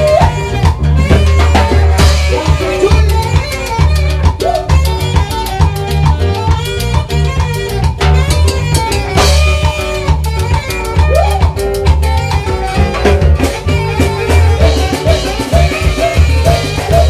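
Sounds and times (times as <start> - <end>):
live band playing dance music: 0.0 - 17.0.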